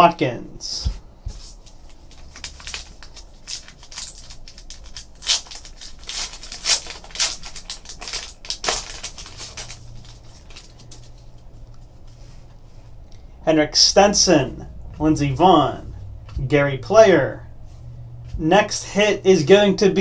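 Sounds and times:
wrapper crinkling and tearing: 1.6 - 11.8.

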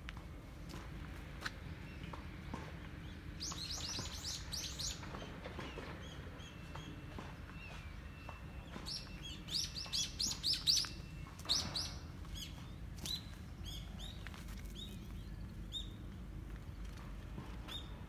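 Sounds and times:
small birds chirping: 1.7 - 16.1.

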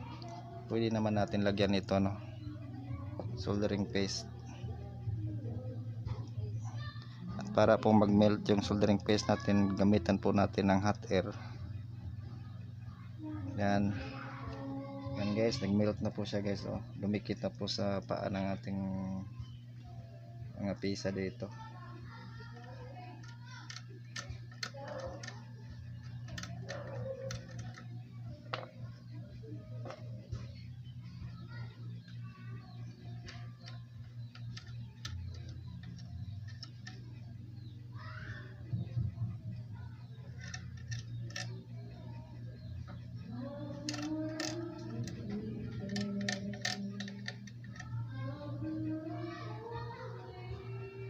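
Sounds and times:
background music with singing: 0.0 - 17.5, 38.6 - 51.0
steady low hum: 0.0 - 51.0
sharp ticks and clicks: 33.2 - 37.2, 40.2 - 42.0, 43.6 - 48.0.

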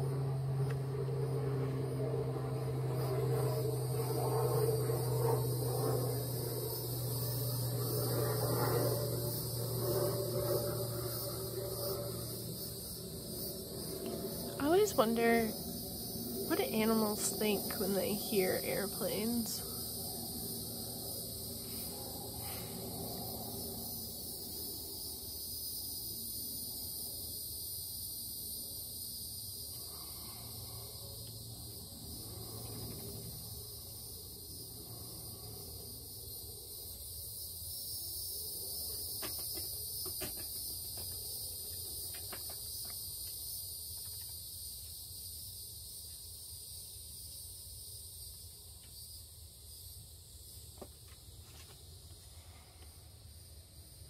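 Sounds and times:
insects singing: 0.0 - 51.8
airplane passing overhead: 0.0 - 54.0.

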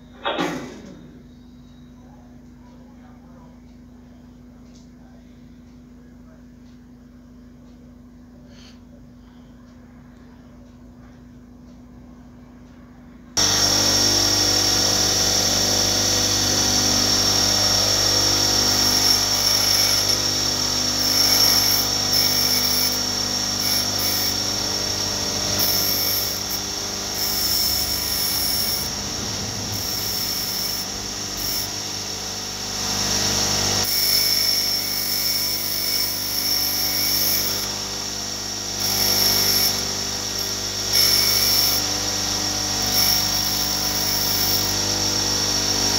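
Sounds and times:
bench grinder running: 13.4 - 45.9
steel wire rasping on grinding wheel: 13.4 - 45.9.

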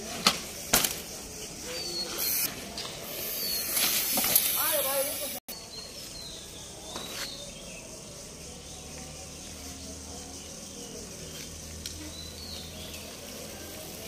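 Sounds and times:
insect chirring: 0.0 - 5.4.

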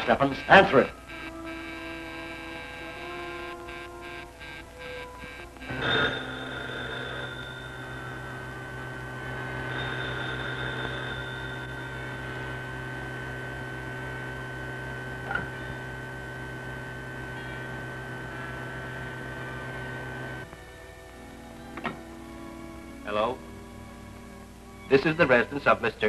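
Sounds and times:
electrical hum: 0.0 - 26.0
low pulsing: 0.9 - 20.5.

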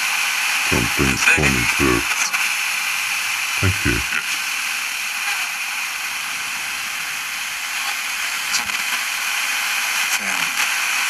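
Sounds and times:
short radio blip: 0.7 - 2.3, 3.6 - 4.1
radio static hiss: 0.7 - 2.4, 3.6 - 4.4.

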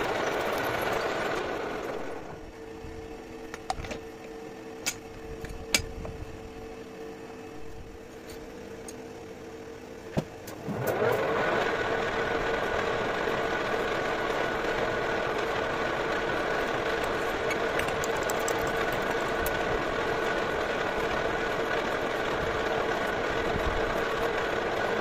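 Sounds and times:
metal lathe humming: 14.1 - 21.1.

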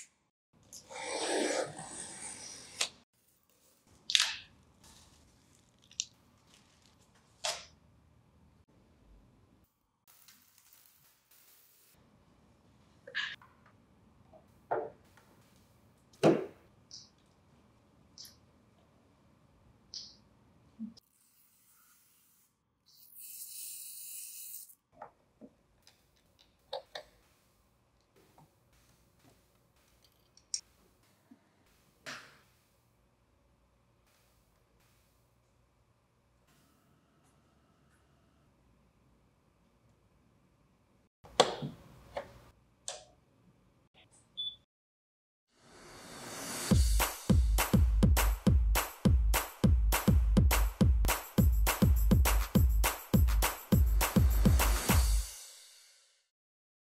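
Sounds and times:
plastic film peeling hiss: 10.1 - 12.0.

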